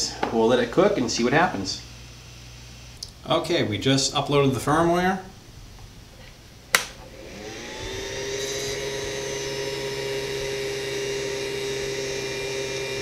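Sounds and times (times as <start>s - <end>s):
printer cooling fan whining: 6.4s - 13.0s.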